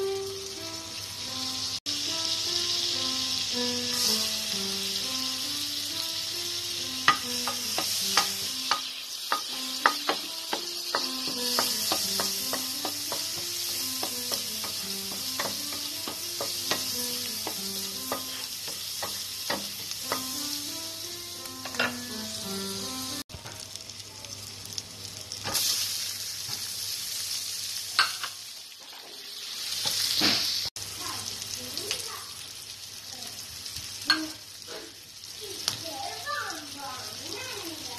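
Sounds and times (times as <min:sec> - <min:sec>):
light background music: 0:00.0 - 0:23.2
ginger sizzling in frying pan: 0:00.0 - 0:37.9.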